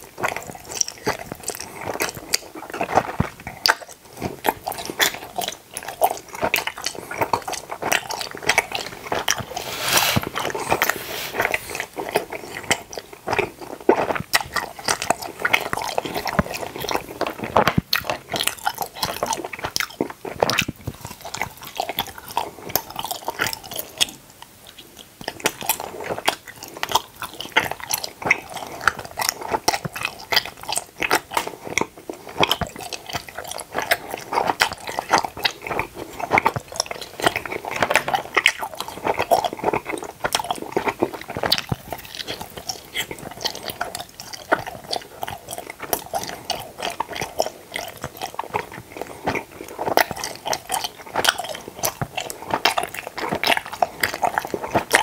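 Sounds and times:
chewing gummy candies: 0.0 - 55.0.

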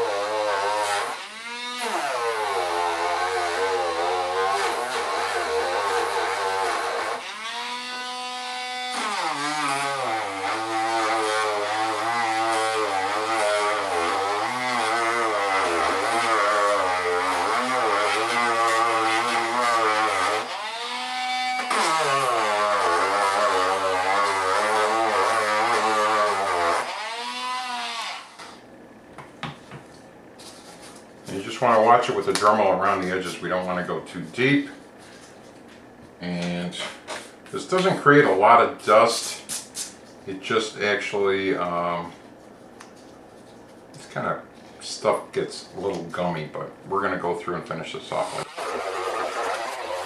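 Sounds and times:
rotary tool sanding plastic: 0.0 - 28.5, 48.2 - 50.0.

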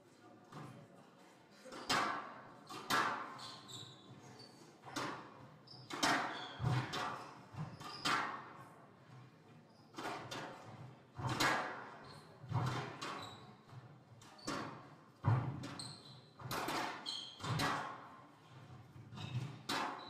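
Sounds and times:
squash ball hitting rackets and walls: 1.6 - 3.7, 4.8 - 8.6, 9.9 - 20.0.

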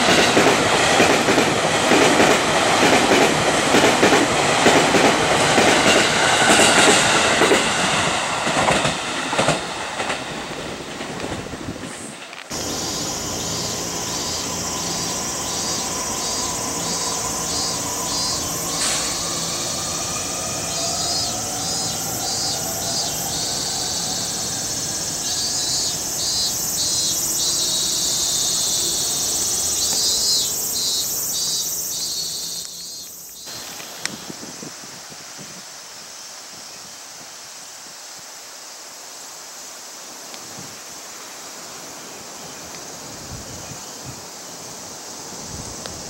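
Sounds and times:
cicadas droning: 0.0 - 46.0
electric train motor whine: 12.5 - 31.5.

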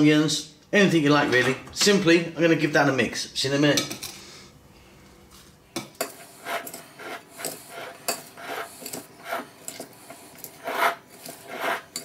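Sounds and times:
spoon scraping and tapping bowl: 5.8 - 12.0.

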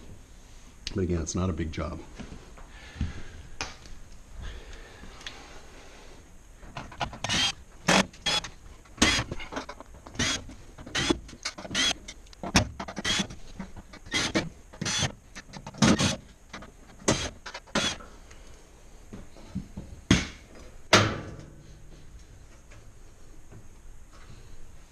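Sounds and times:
cordless drill whining: 7.2 - 9.3, 10.2 - 12.1, 13.0 - 13.4, 14.0 - 15.1, 17.1 - 18.0.

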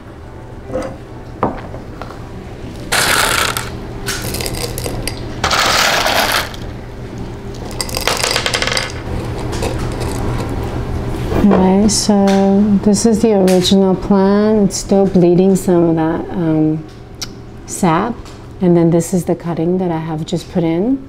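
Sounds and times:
clay pebbles rattling in a pot: 2.9 - 6.6, 7.7 - 10.4.

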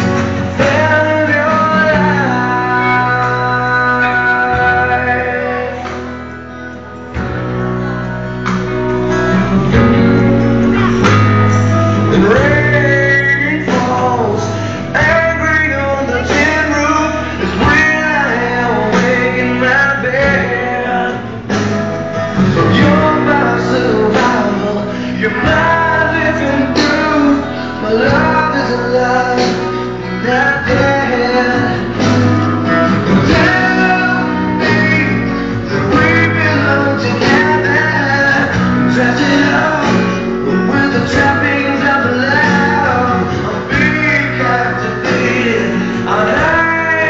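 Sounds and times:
bass line: 0.0 - 47.0
person singing: 0.0 - 47.0.

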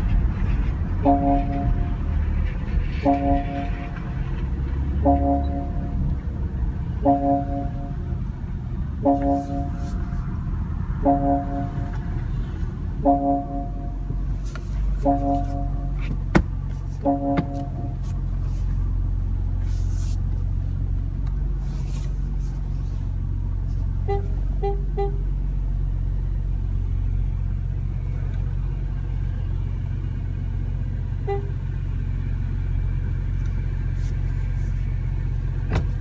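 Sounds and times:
car engine low rumble: 0.0 - 36.0
parking warning beeps: 1.0 - 2.1, 3.0 - 4.2, 5.0 - 6.2, 7.0 - 8.2, 9.0 - 10.2, 11.0 - 12.2, 13.0 - 14.1, 15.0 - 16.0, 17.0 - 18.0.

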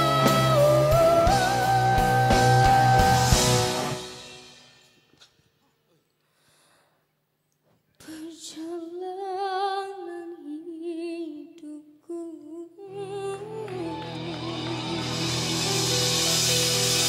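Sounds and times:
solo voice singing with vibrato: 0.0 - 3.9, 8.1 - 16.2
music: 0.0 - 5.4, 12.9 - 17.0.

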